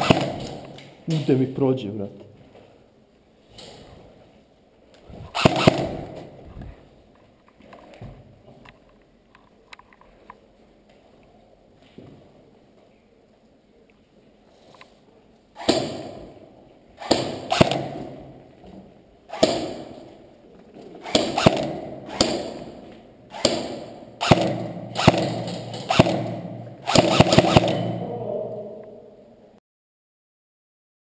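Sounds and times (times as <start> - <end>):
airsoft gun shots echoing: 0.0 - 0.8, 5.4 - 6.4, 15.6 - 16.4, 17.0 - 18.4, 19.3 - 20.1, 21.0 - 28.2.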